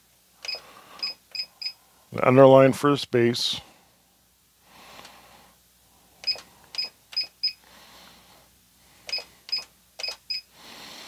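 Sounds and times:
sewing machine keypad beeping: 0:00.4 - 0:01.8, 0:06.2 - 0:07.6, 0:09.1 - 0:10.5.

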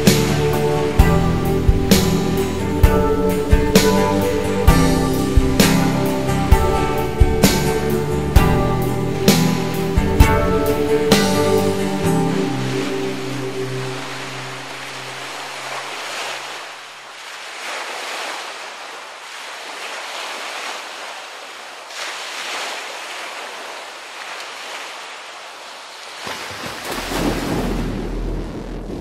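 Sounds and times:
music: 0:00.0 - 0:15.4
sea surf washing: 0:00.0 - 0:29.0
splash into water: 0:14.3 - 0:28.4
muffled underwater rumble: 0:27.0 - 0:29.0.

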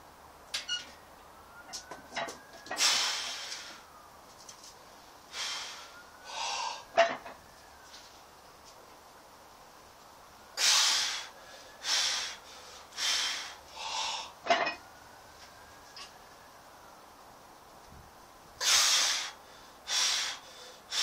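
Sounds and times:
man breathing forcefully: 0:02.8 - 0:03.8, 0:05.3 - 0:06.9, 0:10.6 - 0:14.4, 0:18.6 - 0:21.0.

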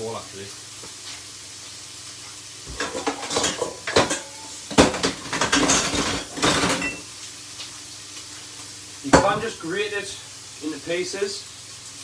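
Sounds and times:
metal kitchenware clattering: 0:02.7 - 0:07.1.

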